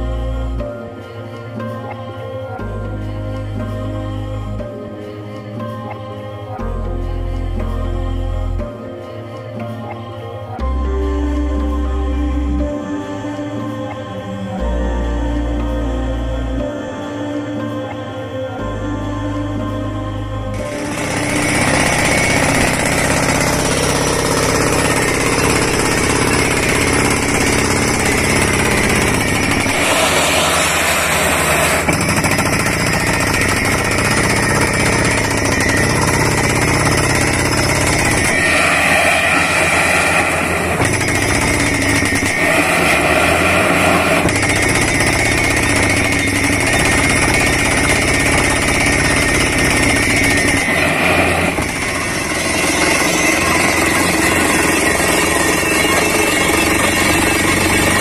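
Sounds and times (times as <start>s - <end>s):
engine running: 20.5s - 58.0s
air compressor: 20.6s - 58.0s
air hammer drilling: 20.6s - 58.0s.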